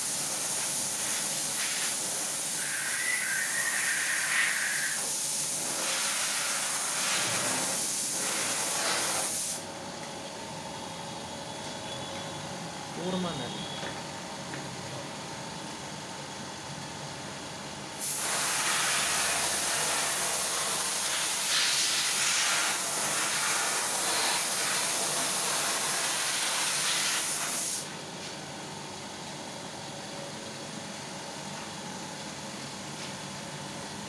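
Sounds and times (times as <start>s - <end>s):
paint spray gun hissing: 0.0s - 9.7s, 18.0s - 28.0s.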